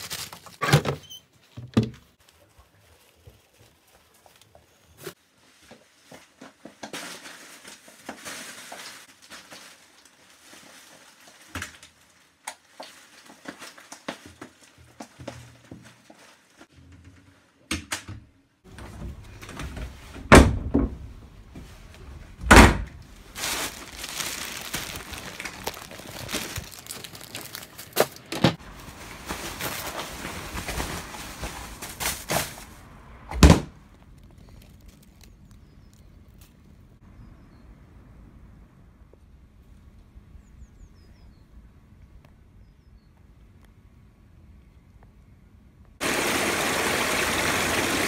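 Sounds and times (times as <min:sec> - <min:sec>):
rubbish rustling into bin: 0:05.0 - 0:16.7, 0:23.1 - 0:32.8
bin lid and doors banging shut: 0:20.2 - 0:21.1, 0:22.4 - 0:22.9.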